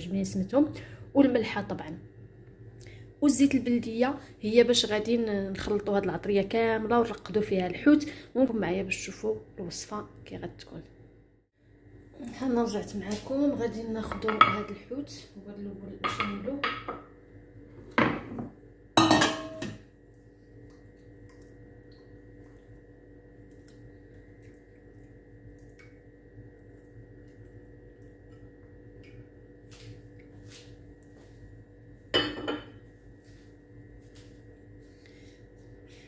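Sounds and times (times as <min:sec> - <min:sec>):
low steady hum: 0:00.0 - 0:36.0
bowl and dishes clattering: 0:18.0 - 0:19.8, 0:32.1 - 0:32.8.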